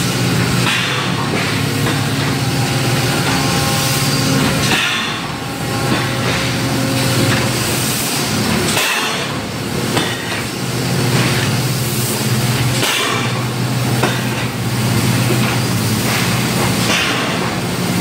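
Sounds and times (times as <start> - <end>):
sharp metallic knocks: 4.5 - 6.6.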